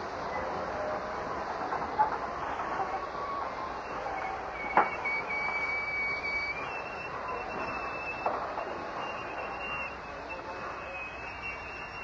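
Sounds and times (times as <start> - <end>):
background hiss: 0.0 - 12.0
thin steady high tone: 2.5 - 12.0.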